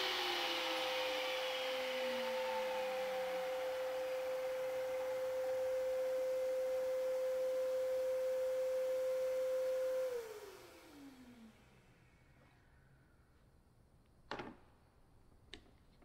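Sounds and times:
table saw whining: 0.0 - 12.0.

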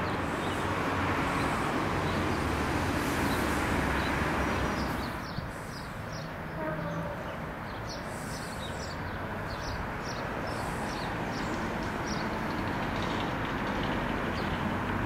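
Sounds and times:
birds chirping: 0.0 - 13.1
diesel locomotive rumbling: 0.0 - 15.0.

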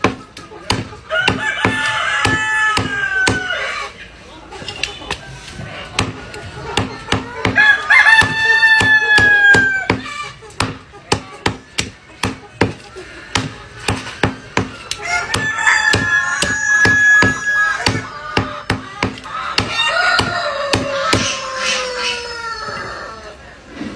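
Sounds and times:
cleaver chopping on wooden block: 0.0 - 3.5, 6.8 - 21.3
rooster crowing: 7.6 - 9.9, 15.0 - 18.1, 19.5 - 23.2.

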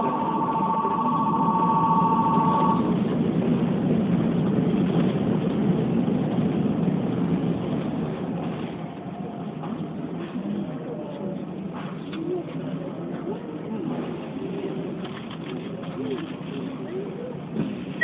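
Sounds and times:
level crossing warning bell: 0.0 - 3.0
train running rumble: 0.0 - 18.0.

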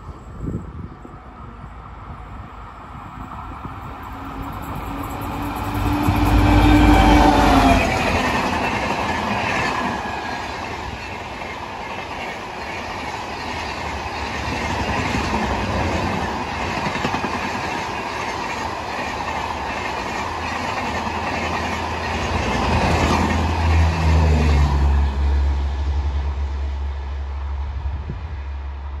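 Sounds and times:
diesel locomotive passing: 0.0 - 29.0
train wheels clattering on rails: 4.3 - 24.4.

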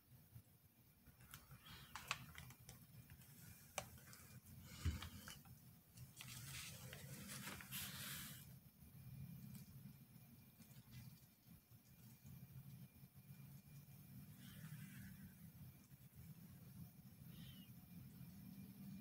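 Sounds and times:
rustling: 1.1 - 8.5.

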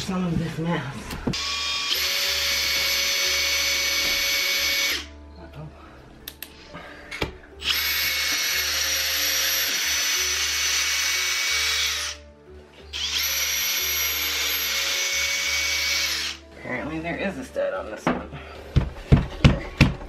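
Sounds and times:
cordless drill whining: 1.3 - 5.1, 7.6 - 12.2, 12.9 - 16.4.

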